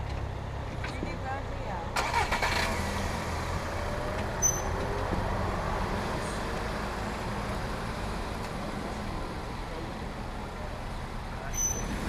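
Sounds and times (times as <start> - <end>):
short high squeak: 4.4 - 4.8, 11.5 - 11.9.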